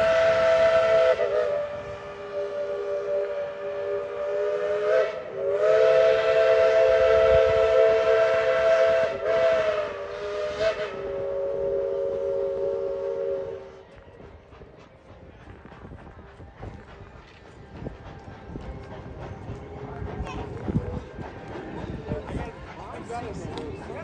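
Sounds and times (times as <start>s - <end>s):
steam whistle blasts: 0.0s - 14.0s.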